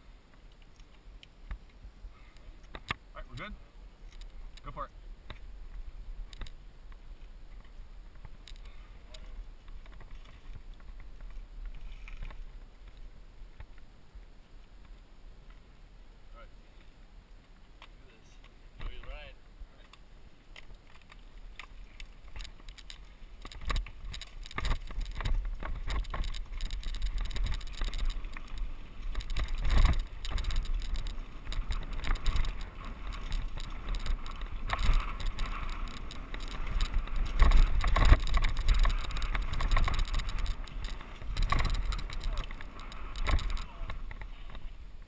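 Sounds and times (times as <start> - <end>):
tyres on dirt: 0.0 - 45.0
bike rattling over bumps: 20.7 - 45.0
wind buffeting microphone: 21.8 - 45.0.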